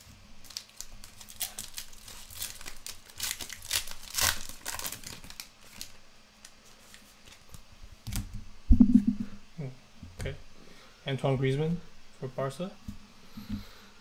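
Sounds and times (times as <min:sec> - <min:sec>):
foil wrapper tearing and crinkling: 0:00.4 - 0:06.0.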